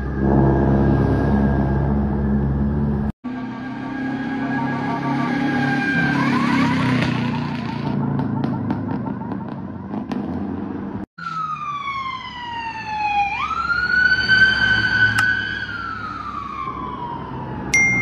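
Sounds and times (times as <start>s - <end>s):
fire engine siren wailing: 0.0s - 7.9s, 11.2s - 17.8s
vehicle engine noise: 0.0s - 11.4s.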